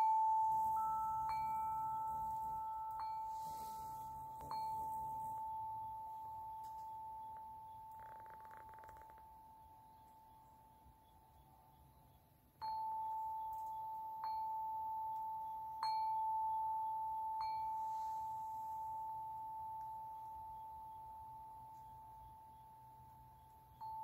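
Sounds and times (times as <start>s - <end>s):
chime ringing: 0.0s - 11.3s, 12.6s - 24.0s.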